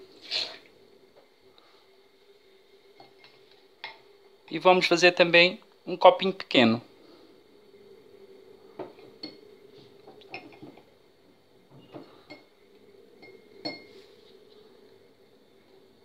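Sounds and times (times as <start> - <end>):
faint steady hum: 0.0 - 16.0
syringe clinking against glass: 13.2 - 13.9.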